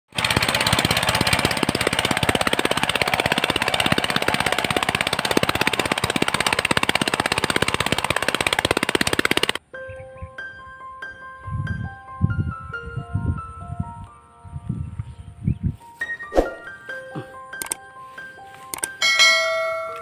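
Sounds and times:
diesel engine chugging: 0.1 - 9.6.

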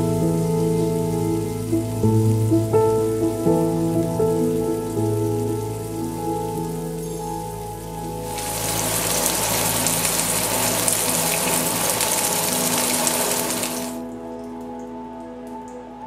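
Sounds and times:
soft background music: 0.0 - 16.0
steak sizzling in a pan: 8.2 - 14.0.

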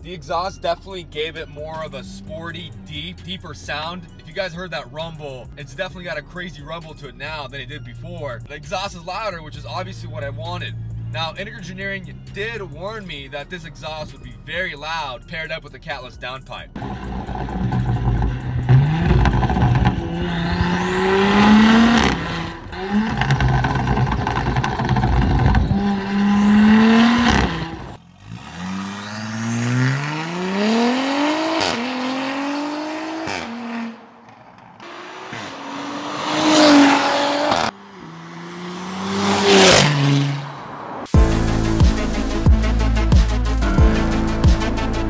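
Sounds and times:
car engine accelerating hard: 16.8 - 45.0.

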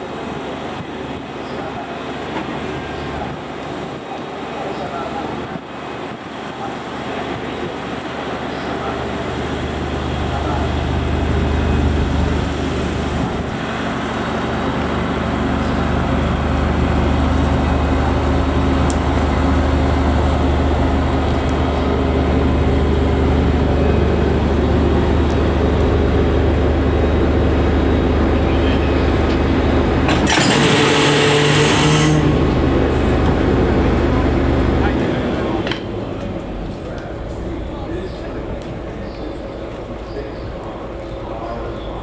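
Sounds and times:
diesel engine humming: 0.0 - 42.0.

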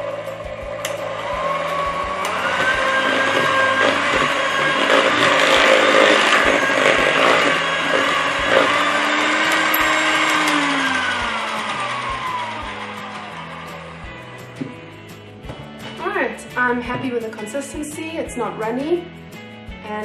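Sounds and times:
electric hand mixer whining: 0.0 - 15.4.

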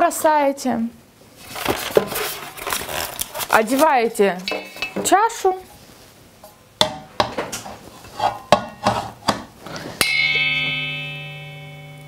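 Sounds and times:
metal bowl clattering: 4.4 - 5.3
metal bowl ringing: 4.5 - 5.0, 10.0 - 12.0.

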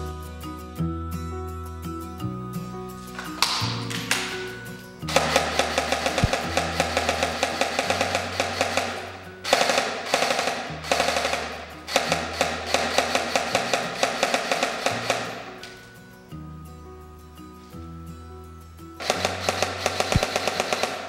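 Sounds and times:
background music with bass line: 0.0 - 9.5
airsoft gun firing full-auto: 5.1 - 15.8, 19.0 - 21.0.

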